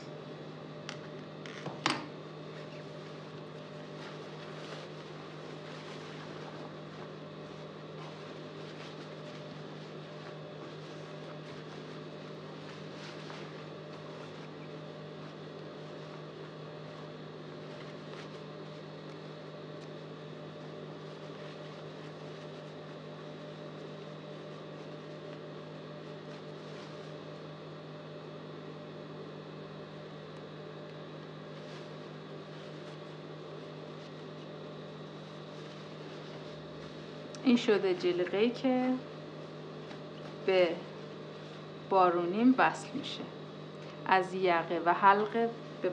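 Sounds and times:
low electrical hum: 0.0s - 45.9s
raincoat fabric rustling: 2.4s - 27.7s, 31.3s - 41.9s.

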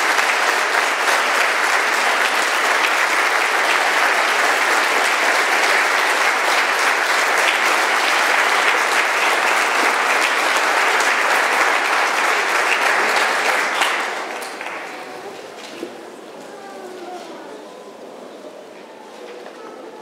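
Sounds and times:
audience applauding: 0.0s - 15.4s.

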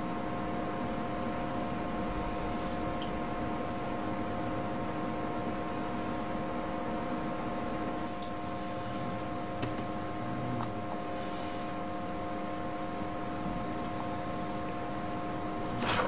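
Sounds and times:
faint constant hum: 0.0s - 16.0s.

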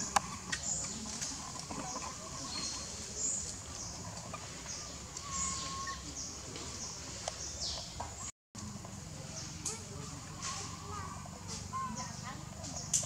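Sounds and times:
high chirping animal calls: 2.3s - 6.4s.

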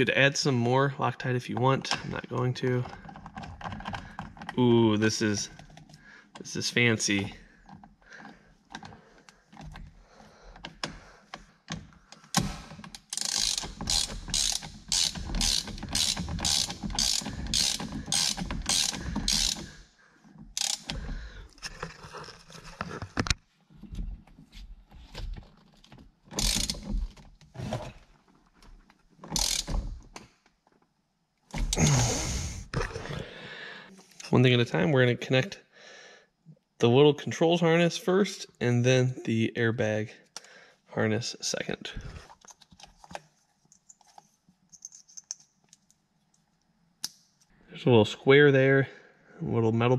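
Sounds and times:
ratchet clicking: 13.0s - 19.7s, 20.6s - 21.0s, 26.4s - 26.8s, 29.4s - 29.7s.

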